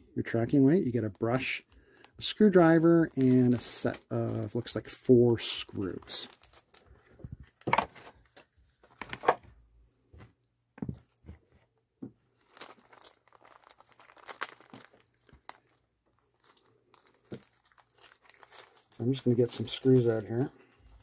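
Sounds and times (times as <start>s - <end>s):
plastic bag crinkling: 1.0s - 8.4s, 12.3s - 21.0s.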